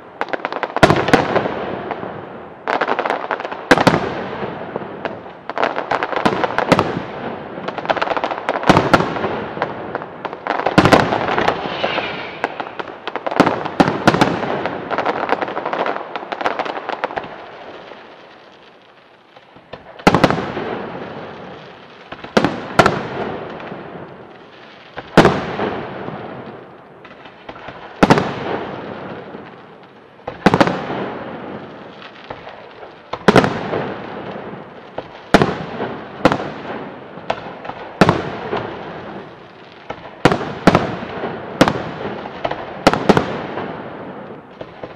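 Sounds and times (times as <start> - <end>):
firework crackling: 0.0 - 44.9
firework shells bursting: 10.7 - 14.6.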